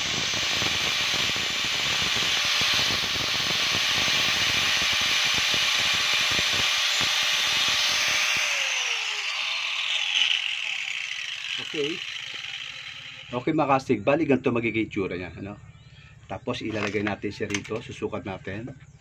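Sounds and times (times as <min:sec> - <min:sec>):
angle grinder grinding plastic: 0:00.0 - 0:13.5, 0:16.6 - 0:17.9.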